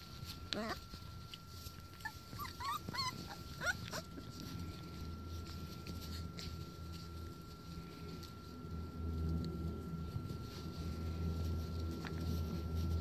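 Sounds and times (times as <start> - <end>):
puppies whimpering and yipping: 0.2 - 7.0.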